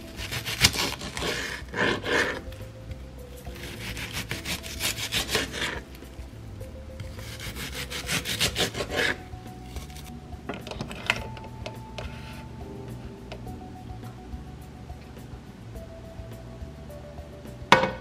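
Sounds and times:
background music: 0.0s - 18.0s
knife chopping on cutting board: 0.1s - 2.4s, 3.6s - 5.8s, 7.0s - 9.2s.

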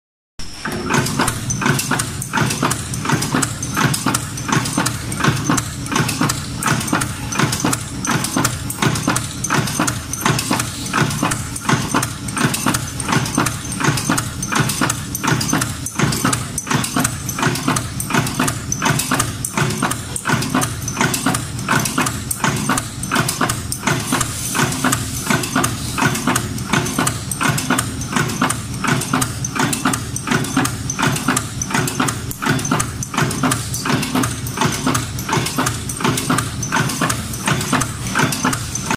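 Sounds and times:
machine metallic clacks: 0.4s - 38.9s.

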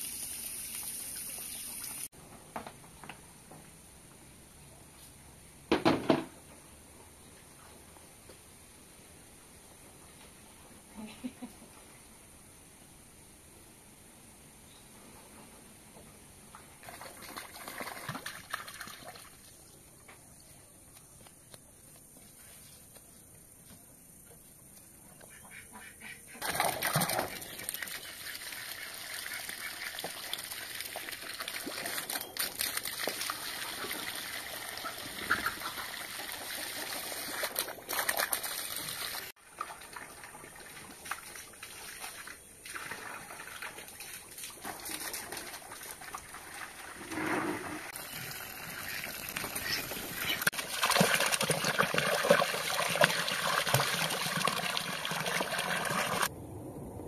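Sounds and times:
hose water running into basin: 0.0s - 2.1s, 26.4s - 56.3s
water splashing feet: 34.8s - 46.8s.

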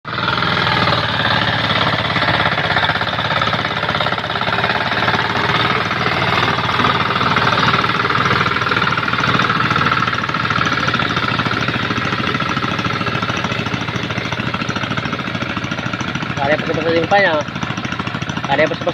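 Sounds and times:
tractor engine chugging: 0.1s - 18.9s.

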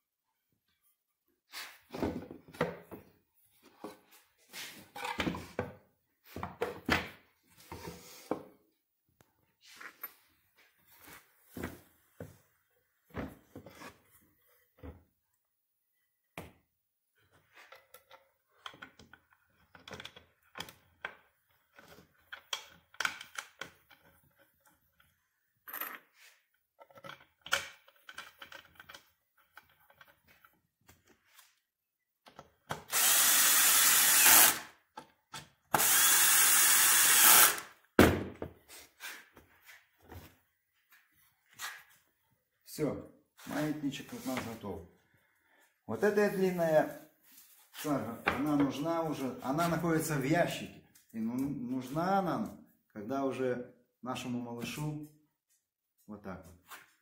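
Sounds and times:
cordless drill driving screws: 32.8s - 34.7s, 35.7s - 37.7s.

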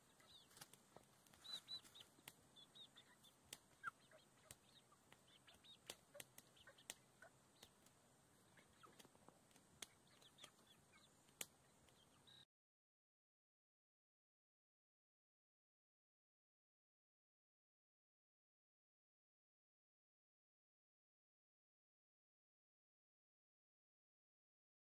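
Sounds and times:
beaks pecking: 0.0s - 12.2s
hens chirping: 0.0s - 12.4s.

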